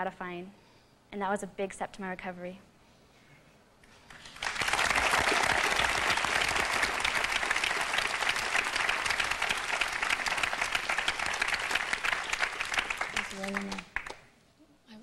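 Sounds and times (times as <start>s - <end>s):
audience applauding: 4.1s - 14.3s.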